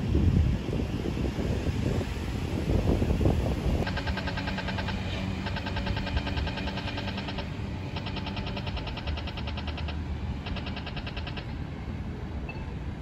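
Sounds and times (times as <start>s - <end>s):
street traffic hum: 0.0s - 13.0s
crossing signal ticking rapidly: 3.8s - 11.6s.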